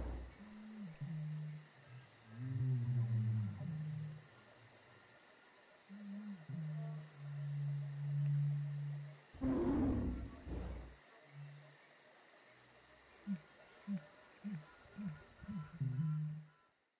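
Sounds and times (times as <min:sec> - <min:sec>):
insects chirping: 0:00.0 - 0:16.9
loud animal roar: 0:09.4 - 0:10.9.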